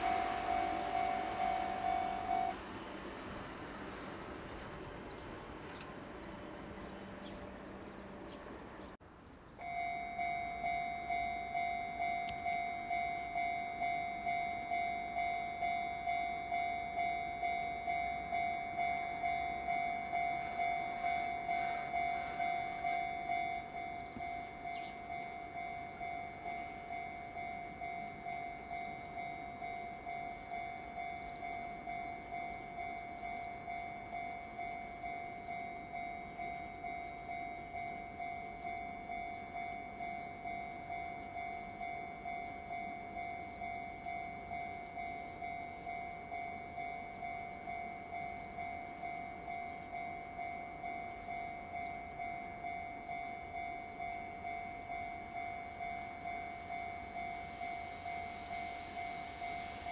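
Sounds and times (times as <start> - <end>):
level crossing bell ringing: 0.0 - 2.6, 9.6 - 59.9
electric train passing: 0.0 - 59.9.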